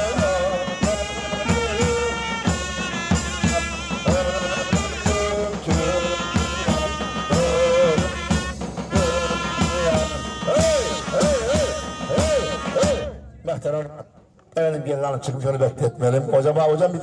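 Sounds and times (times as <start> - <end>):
wind instruments melody: 0.0 - 13.5
big drums beating: 0.0 - 14.2.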